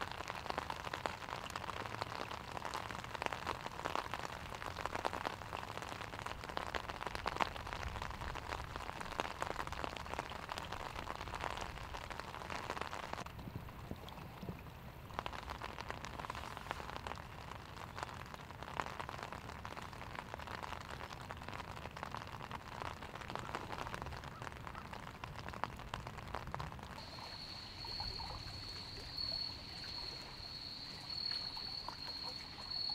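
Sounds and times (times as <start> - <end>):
rain hiss: 0.0 - 32.9
raindrops ticking on an umbrella: 0.0 - 32.9
high insect trill: 27.0 - 32.9.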